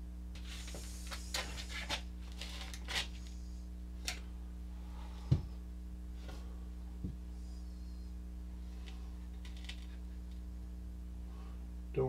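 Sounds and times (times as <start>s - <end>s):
steady low hum: 0.0s - 12.0s
paper rustling and crinkling: 0.4s - 3.4s, 8.8s - 10.0s.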